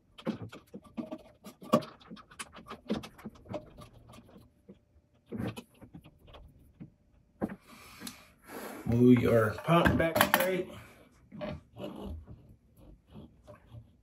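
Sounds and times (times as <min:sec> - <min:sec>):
pump being handled knocks and clicks: 0:09.6 - 0:10.6.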